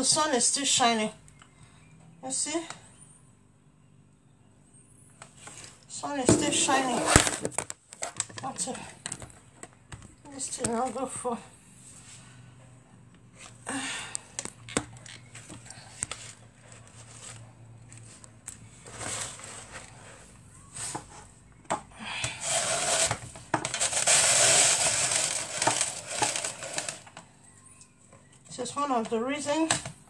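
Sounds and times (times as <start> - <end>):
dishes knocking and clinking: 6.3 - 7.6
rustling and clattering: 6.3 - 8.2.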